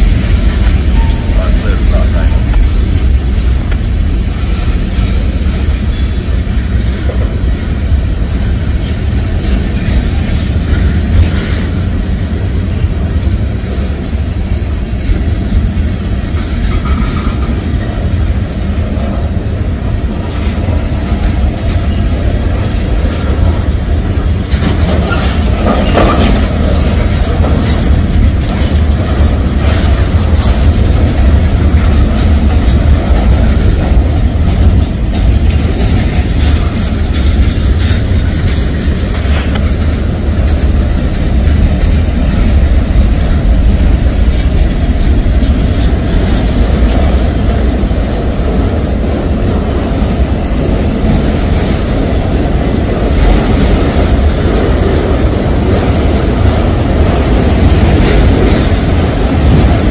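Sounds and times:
train wheels rumbling on rails: 0.0s - 59.9s
wheels clicking over rail joints: 15.0s - 59.9s.

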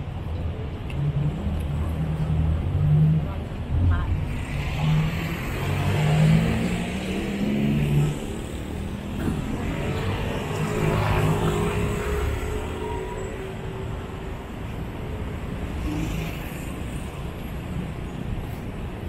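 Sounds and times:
cars passing close by: 4.2s - 14.5s.

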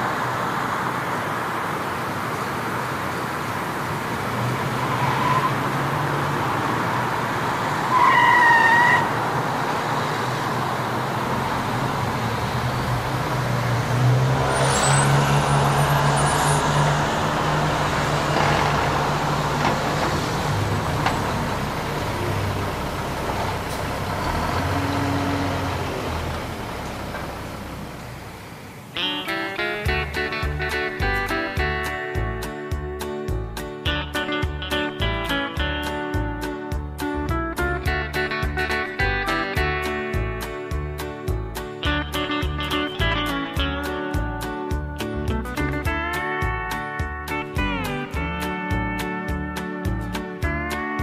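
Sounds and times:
street traffic: 0.0s - 51.0s
car horn: 7.9s - 9.2s
car engine running: 9.0s - 29.0s.

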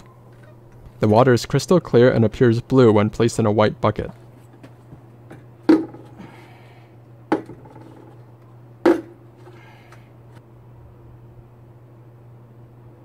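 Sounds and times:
steady low hum: 0.0s - 13.0s
plastic lid knocks: 5.7s - 6.1s, 7.3s - 8.0s, 8.9s - 9.2s.

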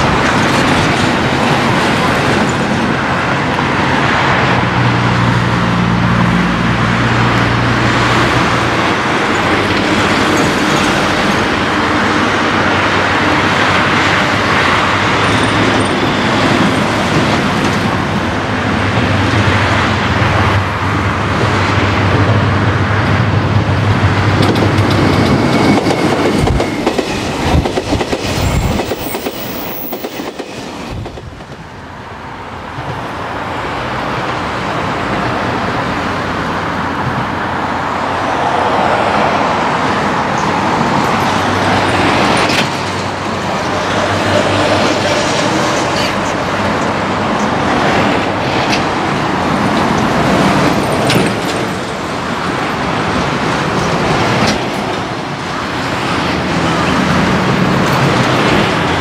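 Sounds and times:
train wheels clacking on rails: 0.0s - 3.7s, 7.2s - 31.8s, 40.2s - 59.0s
locomotive engine humming: 0.0s - 59.0s
road traffic noise: 0.0s - 59.0s.

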